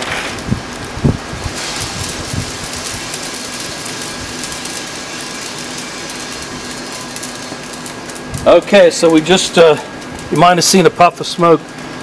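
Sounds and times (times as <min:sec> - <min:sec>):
roaster fans rushing air: 0:00.0 - 0:12.0
coffee beans snapping: 0:01.5 - 0:10.5.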